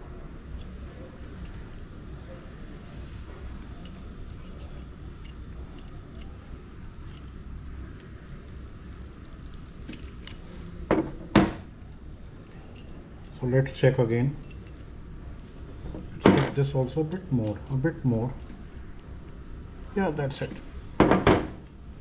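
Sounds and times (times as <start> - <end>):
small metal clicks: 3.8 - 7.4.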